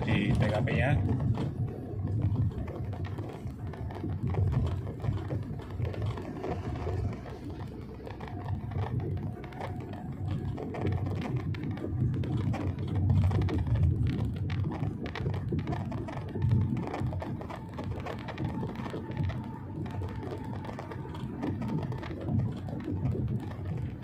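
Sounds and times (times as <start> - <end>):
road and engine rumble: 0.0 - 24.0.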